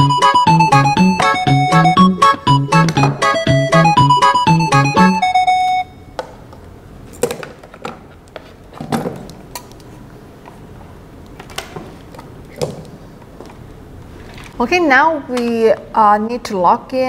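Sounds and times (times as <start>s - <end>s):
short music cue: 0.0s - 5.9s.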